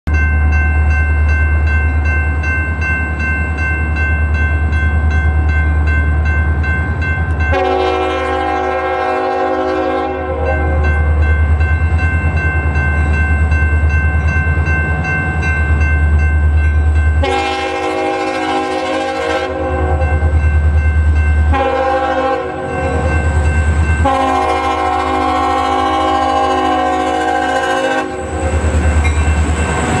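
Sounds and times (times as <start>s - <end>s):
crossing bell ringing: 0.1s - 30.0s
locomotive air horn blasts: 7.5s - 11.2s, 17.2s - 20.2s, 21.5s - 23.1s, 24.0s - 28.3s.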